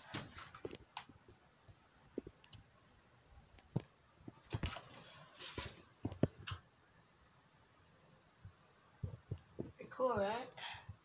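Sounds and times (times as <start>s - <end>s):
faint clicks and soft knocks: 0.0s - 2.8s, 3.4s - 6.7s, 8.4s - 11.0s.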